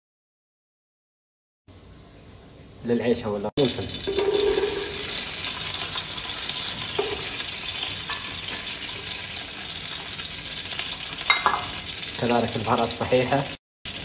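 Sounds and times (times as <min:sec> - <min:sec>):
food sizzling in hot oil: 0:03.5 - 0:14.0.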